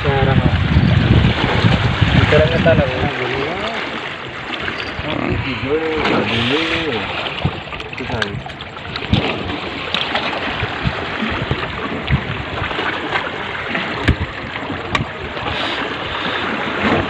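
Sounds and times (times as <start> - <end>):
river water rushing: 1.0 - 17.0.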